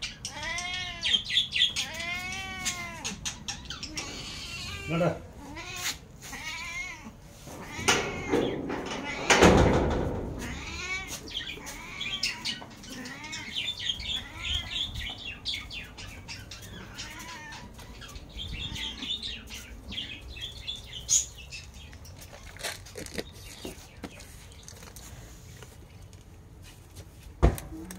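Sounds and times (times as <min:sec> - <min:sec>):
cat meowing: 0:00.3 - 0:03.2, 0:03.9 - 0:09.3, 0:10.4 - 0:15.0, 0:16.7 - 0:19.1.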